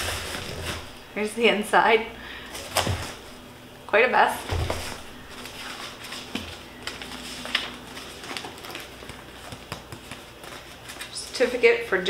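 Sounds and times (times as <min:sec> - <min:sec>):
hands rustling shredded paper: 0:04.9 - 0:11.6.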